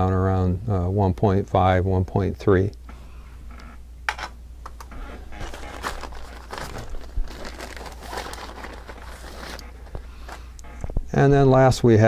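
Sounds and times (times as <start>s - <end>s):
backpack rustling and crinkling: 4.9s - 10.5s.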